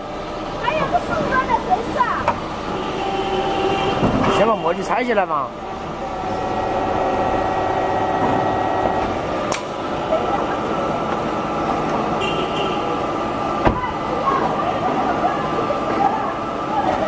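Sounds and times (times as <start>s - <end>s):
machine hum with held tones: 5.5s - 9.3s.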